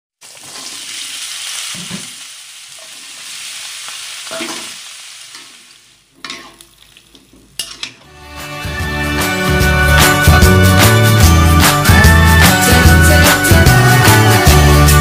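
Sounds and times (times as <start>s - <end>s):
chillies sizzling in hot oil: 0.2s - 7.9s
metal spatula scraping wok: 4.2s - 6.6s.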